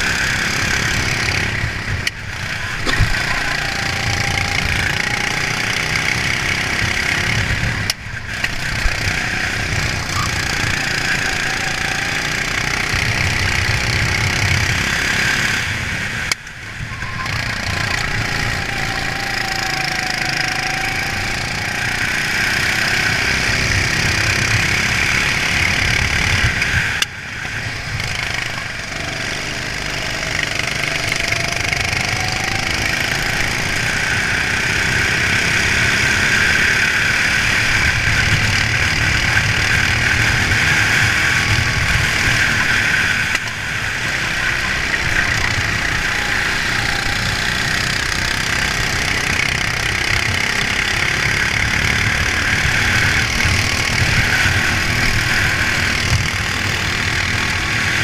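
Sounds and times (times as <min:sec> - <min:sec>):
kart engine at speed: 0:00.0 - 0:58.0.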